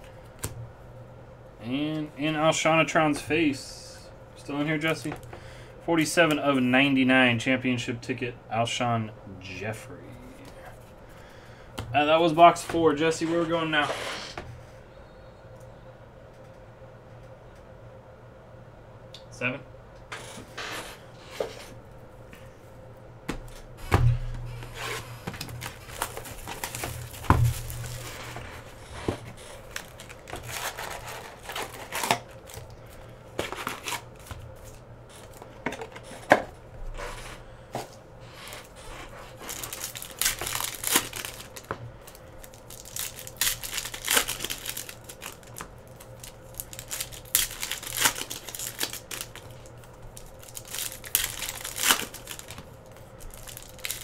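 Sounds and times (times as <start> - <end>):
plastic wrapping tearing and crinkling: 24.4 - 36.2, 38.4 - 54.0.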